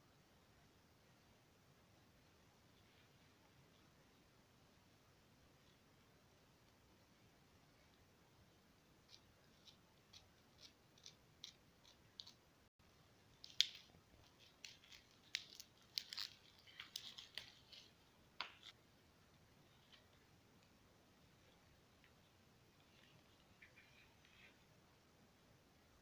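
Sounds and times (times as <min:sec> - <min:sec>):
plastic wrap crinkling: 0:13.3 - 0:18.8.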